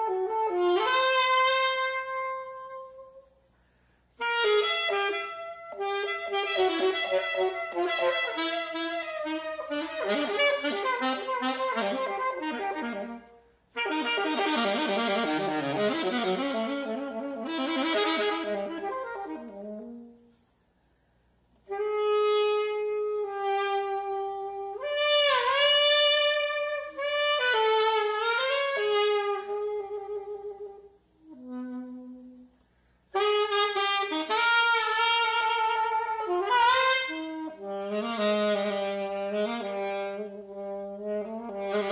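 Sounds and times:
saxophone playing jazz: 0.0 - 20.6, 21.4 - 41.9.

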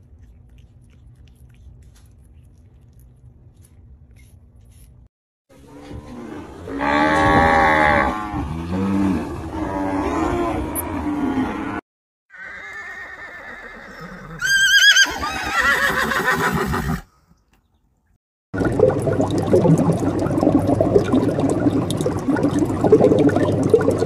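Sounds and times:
zebra whinnying: 12.3 - 17.0.

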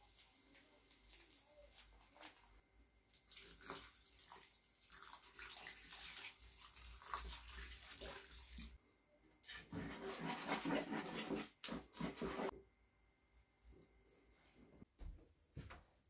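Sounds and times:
soda pouring and splashing: 3.1 - 8.8.

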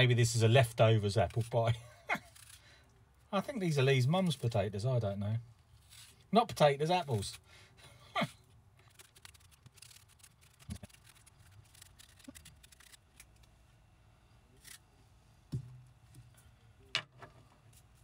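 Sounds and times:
blade scraping apple skin: 1.1 - 2.7, 8.8 - 13.4
soft knocks: 15.5 - 15.8.

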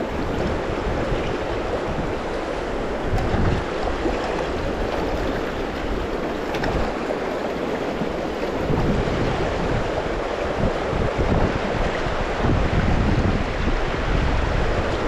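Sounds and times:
river rapids rushing: 0.0 - 15.0
wind buffeting microphone: 0.0 - 15.0.

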